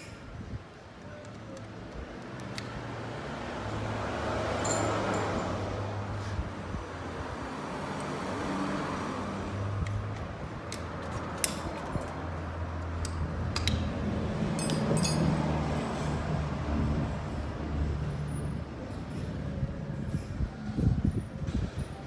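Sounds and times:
low rumble of traffic: 0.0 - 22.0
metallic clinks of hand tools: 4.6 - 5.6, 14.5 - 16.1.

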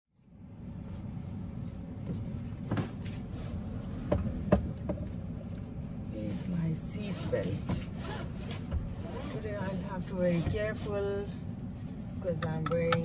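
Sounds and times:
steady low rumble: 0.2 - 13.0
seat belt clicks and knocks: 4.0 - 5.2, 7.4 - 9.3, 12.3 - 13.0.

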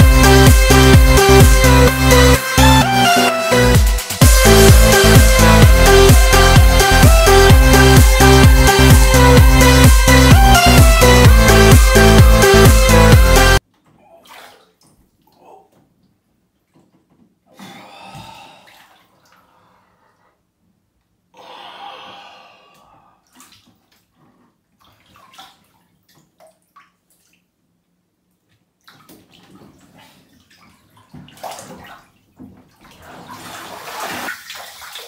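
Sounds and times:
water sloshing in a bathtub: 13.6 - 20.3, 22.8 - 27.7, 28.4 - 35.0.

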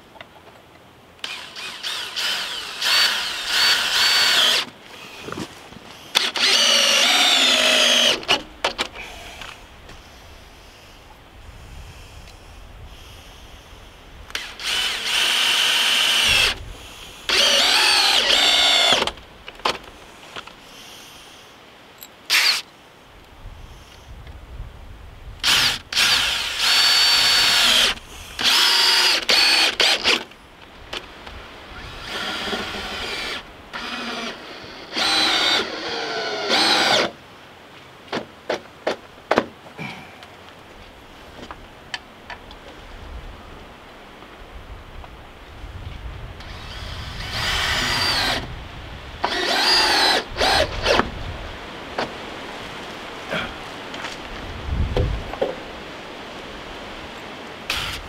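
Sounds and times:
cordless drill driving screws: 1.2 - 5.5, 6.1 - 9.6, 14.3 - 16.6, 17.3 - 19.2, 22.3 - 22.7, 25.4 - 30.3, 31.8 - 37.2, 46.4 - 48.5, 49.2 - 51.0, 57.7 - 58.0.

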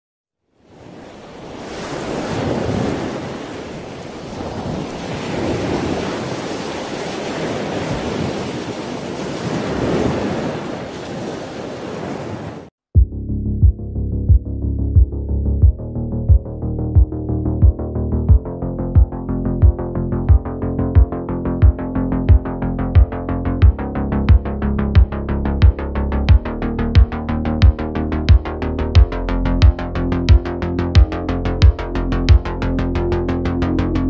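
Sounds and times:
ocean surf washing in: 0.6 - 12.7
kick drum beat: 13.0 - 32.5
synthesizer notes: 13.0 - 34.0.

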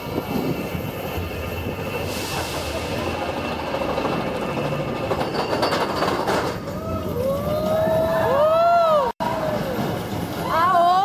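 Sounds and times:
roller coaster train rolling: 0.0 - 11.0.

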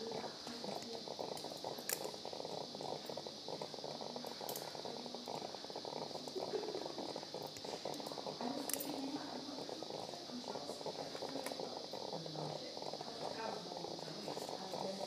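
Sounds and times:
steady hiss and crackle: 0.0 - 15.0
surgical instruments clicking: 0.7 - 2.4, 7.4 - 9.1, 11.1 - 12.1.

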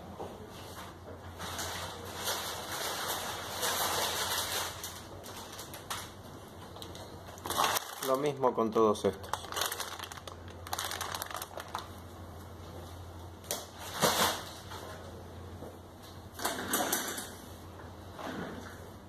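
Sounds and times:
plastic bags crinkling: 1.4 - 6.2, 7.4 - 12.1.

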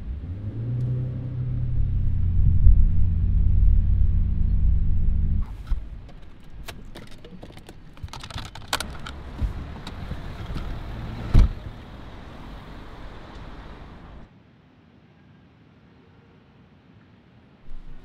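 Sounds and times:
rustling of person climbing out: 5.4 - 11.7
car door handle clicks and rattles: 5.7 - 11.7
car door slamming shut: 10.6 - 11.8.

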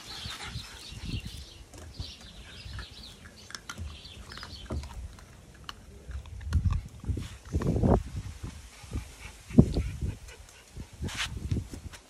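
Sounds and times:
small birds chirping: 0.0 - 6.8.

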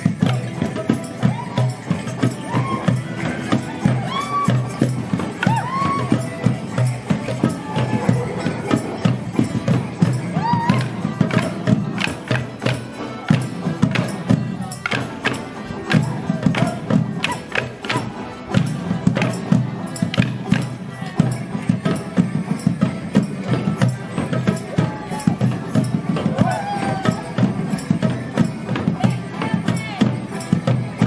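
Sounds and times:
sharp percussive hits: 0.0 - 20.7
folk band with melodeons and drums: 0.0 - 31.0.

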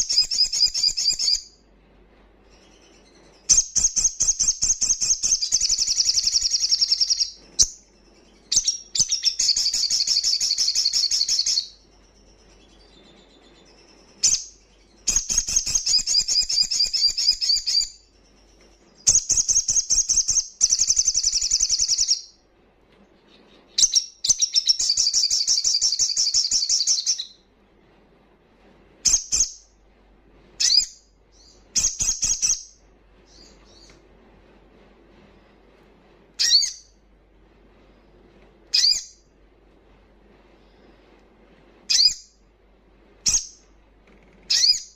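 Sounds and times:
bird singing high trills: 0.0 - 1.6, 2.6 - 22.4, 23.7 - 27.4, 30.6 - 33.9, 36.4 - 37.0, 38.7 - 39.3, 41.9 - 42.4, 44.5 - 44.9.

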